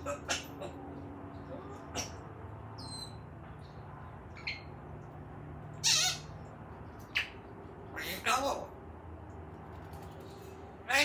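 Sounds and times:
parrot warbling call: 0:00.0 - 0:00.8, 0:05.8 - 0:06.4
parrot whistle: 0:05.8 - 0:06.3.

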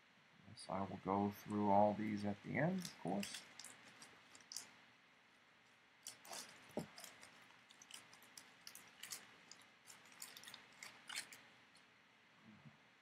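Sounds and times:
foil wrapper crinkling: 0:02.6 - 0:04.8, 0:06.0 - 0:11.9.

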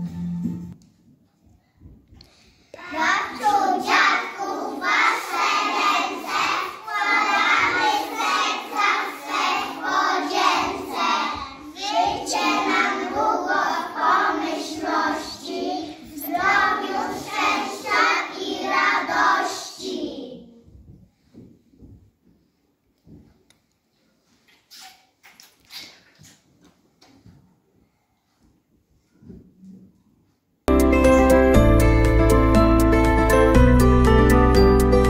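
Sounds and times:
children singing in unison: 0:02.8 - 0:20.2.

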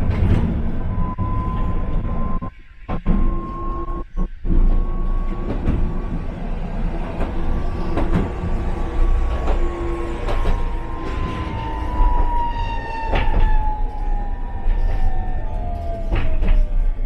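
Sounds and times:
streetcar rumble: 0:00.0 - 0:17.0
wheels clicking over rail joints: 0:05.3 - 0:17.0.

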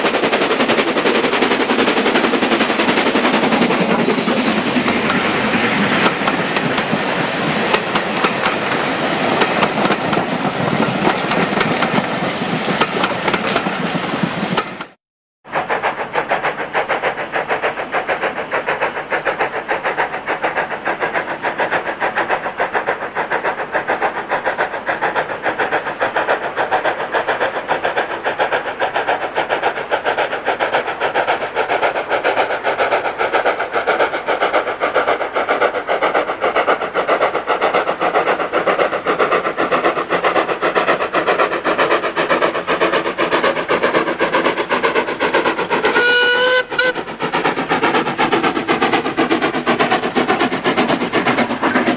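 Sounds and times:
steam locomotive exhaust beats: 0:00.0 - 0:51.9
steam locomotive whistle: 0:45.8 - 0:47.2.

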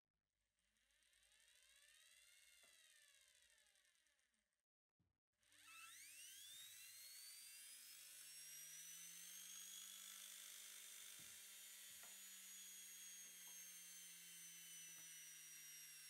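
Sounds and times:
motor high whine: 0:05.6 - 0:10.3, 0:11.0 - 0:16.0.

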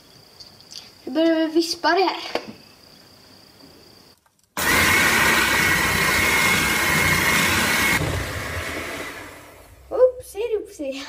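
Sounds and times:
electric hand mixer whining: 0:04.6 - 0:09.9.

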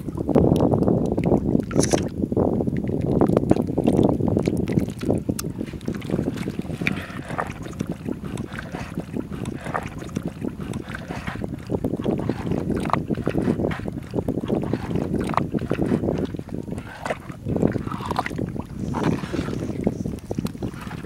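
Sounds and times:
wind rumbling on microphone: 0:00.0 - 0:21.0
hands squelching paste in pot: 0:04.4 - 0:21.0.

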